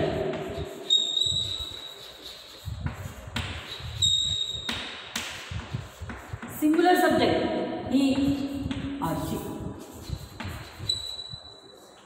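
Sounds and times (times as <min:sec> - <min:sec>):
chalk tapping and scratching: 0:00.0 - 0:07.1, 0:08.0 - 0:12.0
chalk squeaks: 0:00.2 - 0:05.0, 0:08.4 - 0:12.0.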